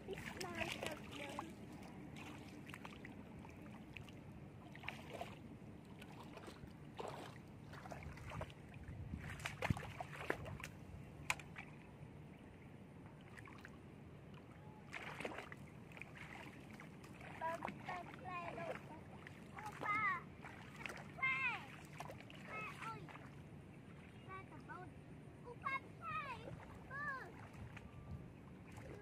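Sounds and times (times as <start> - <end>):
feet wading through water: 0.0 - 12.0, 13.1 - 24.7, 26.1 - 29.0.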